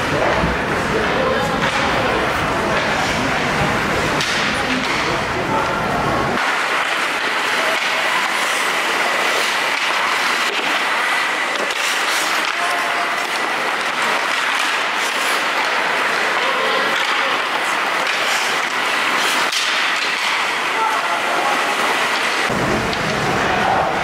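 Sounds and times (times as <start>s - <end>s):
hockey sticks and puck clicking: 1.0s - 2.0s, 4.1s - 5.2s, 6.4s - 21.0s, 21.6s - 23.5s
steady rushing din: 6.3s - 24.0s
skates scraping ice: 6.4s - 24.0s.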